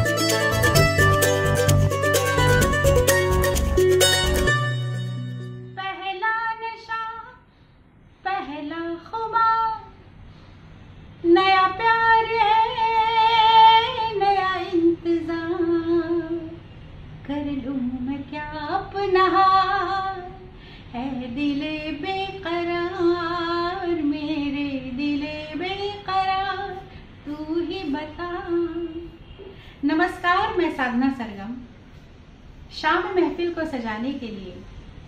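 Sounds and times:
woman singing unaccompanied: 5.8s - 7.4s, 8.2s - 9.9s, 11.2s - 16.6s, 17.2s - 30.8s
woman breathing: 20.5s - 21.0s, 29.4s - 29.8s.

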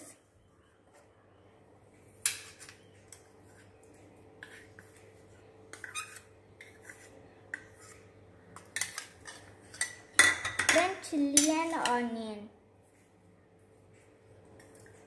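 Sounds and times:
spoon scraping ceramic bowl: 2.4s - 5.1s, 5.7s - 10.0s.

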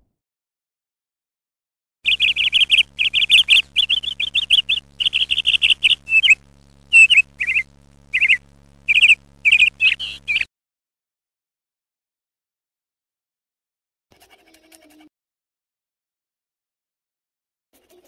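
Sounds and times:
faint steady hum: 2.0s - 10.5s
small bird chirping: 2.0s - 10.5s.

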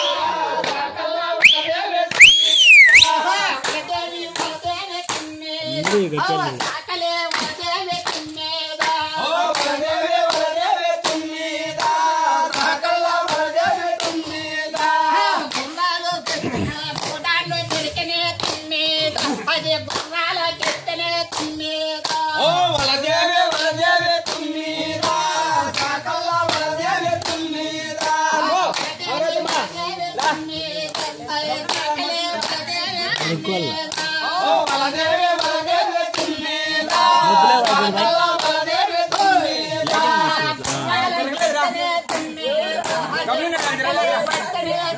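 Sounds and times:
group singing: 0.0s - 44.9s
hands clapping in rhythm: 0.0s - 44.9s.

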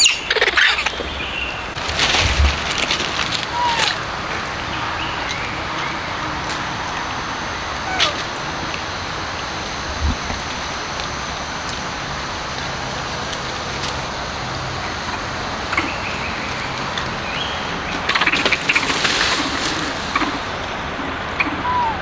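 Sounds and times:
outdoor background hiss: 0.0s - 22.0s.

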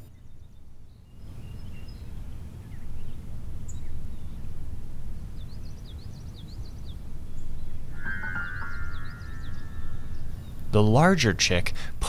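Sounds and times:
small birds chirping: 0.0s - 11.9s
high down-slurred chirps: 7.8s - 11.3s.

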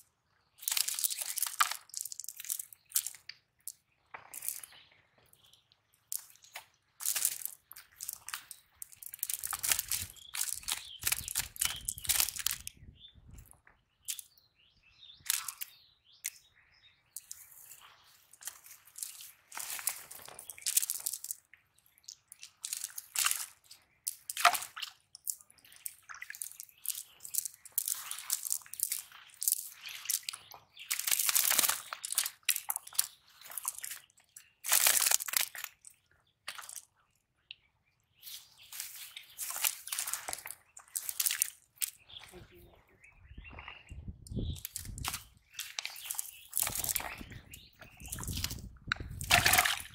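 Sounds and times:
net mesh crackling and rustling: 7.0s - 12.6s
fish flapping: 44.6s - 49.9s.

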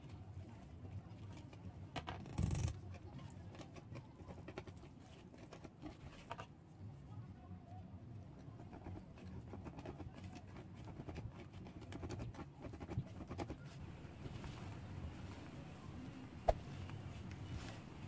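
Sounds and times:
hands kneading dough: 8.4s - 18.0s.

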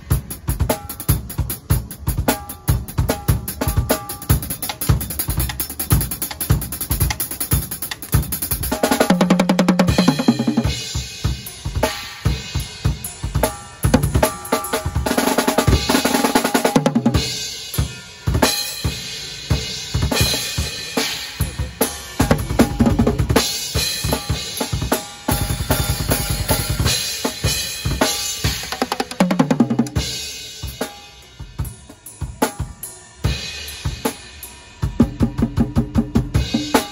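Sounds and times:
bass drum and snare strokes: 0.0s - 19.1s.

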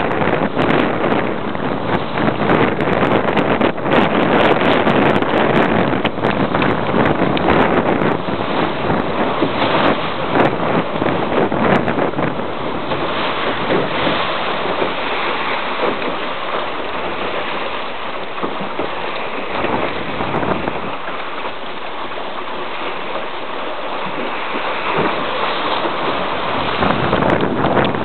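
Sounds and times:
water rushing along boat hull: 0.0s - 28.0s
wind buffeting microphone: 0.0s - 28.0s.

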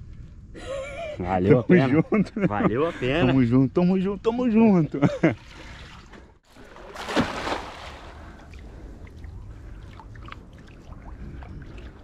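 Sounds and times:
water splashing and sloshing: 5.1s - 12.0s.

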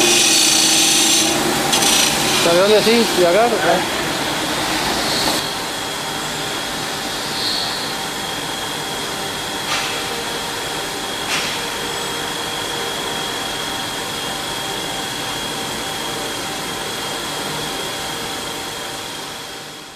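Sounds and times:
grinder machine rushing noise: 0.0s - 5.4s
high whine: 0.0s - 9.5s.

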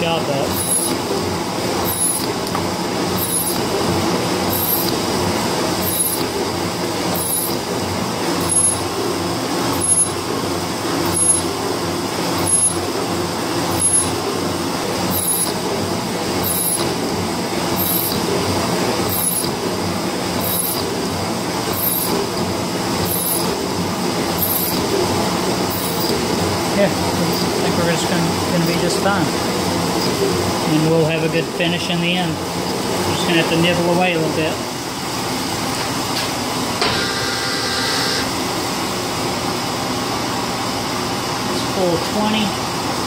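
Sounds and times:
metal shaper cutting: 0.0s - 1.2s, 1.8s - 6.4s, 7.1s - 7.7s, 8.3s - 8.9s, 9.7s - 10.3s, 11.0s - 11.6s, 12.3s - 12.9s, 13.6s - 14.2s, 15.0s - 15.7s, 16.3s - 17.1s, 17.7s - 18.4s, 19.0s - 19.6s, 20.4s - 21.0s, 21.7s - 22.4s, 23.0s - 23.6s, 24.3s - 25.0s, 25.7s - 26.3s.

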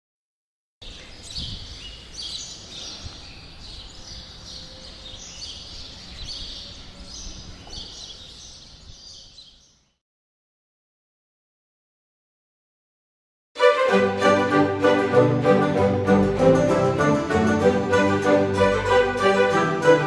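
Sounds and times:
songbirds chirping: 0.8s - 10.0s.

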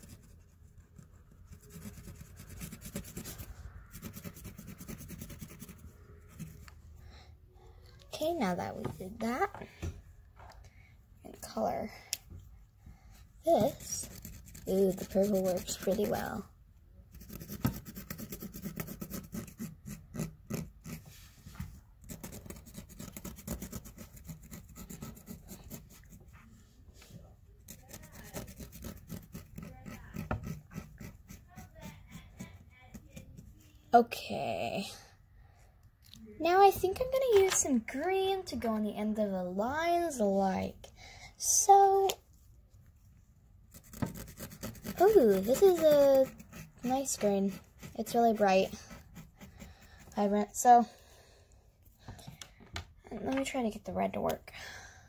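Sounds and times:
marker scratching on fabric: 0.0s - 6.8s, 13.4s - 16.5s, 17.1s - 34.6s, 43.7s - 50.5s.

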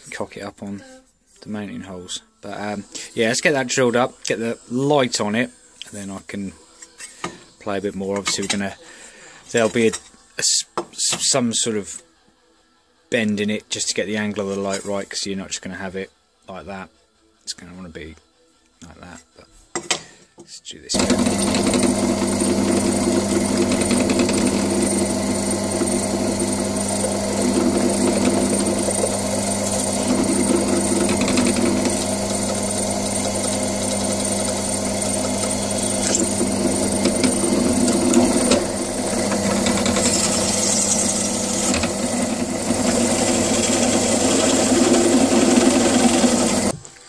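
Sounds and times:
drill bit drilling sheet metal: 20.9s - 46.8s
drill press motor humming: 20.9s - 46.8s.

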